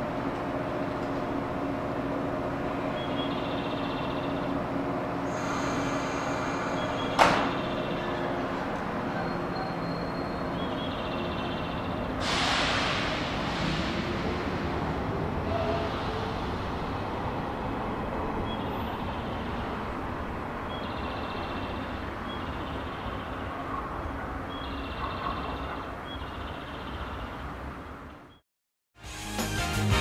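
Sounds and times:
train pulling out: 0:00.0 - 0:23.6
low rumble of electric trains: 0:00.0 - 0:28.4.

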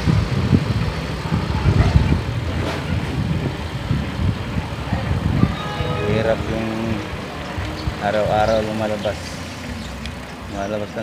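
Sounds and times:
wind buffeting microphone: 0:00.0 - 0:05.6
traffic noise: 0:00.0 - 0:11.0.

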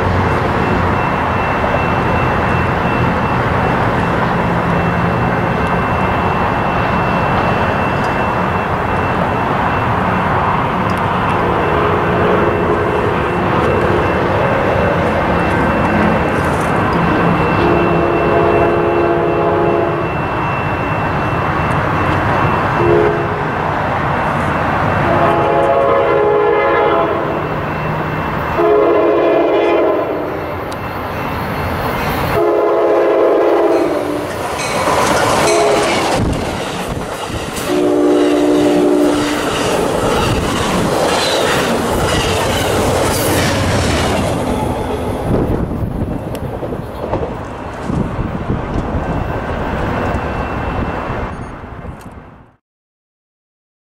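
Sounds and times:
train rumble: 0:00.0 - 0:52.5
train horn blasts: 0:11.4 - 0:13.2, 0:17.2 - 0:20.2, 0:22.8 - 0:23.6, 0:25.0 - 0:27.5, 0:28.5 - 0:30.4, 0:32.3 - 0:34.3, 0:35.4 - 0:36.3, 0:37.6 - 0:40.4
wheels clattering over rail joints: 0:34.1 - 0:49.0.

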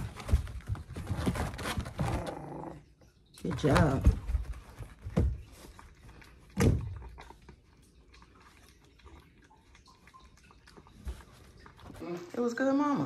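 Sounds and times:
dog chewing food: 0:03.5 - 0:12.3.

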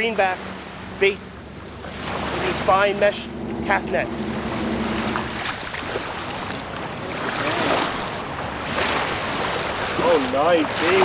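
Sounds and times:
small waves lapping at shore: 0:00.0 - 0:11.0
low steady hum: 0:00.1 - 0:07.2
wind on microphone: 0:00.8 - 0:07.1.

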